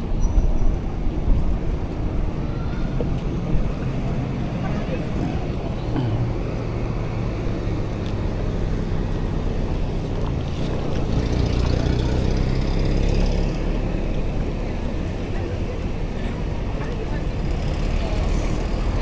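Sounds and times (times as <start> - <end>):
vehicle engine humming: 0.0 - 19.0.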